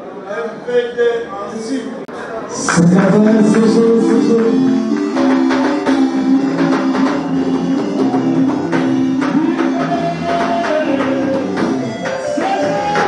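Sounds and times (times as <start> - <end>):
music with steady beat: 2.7 - 13.0.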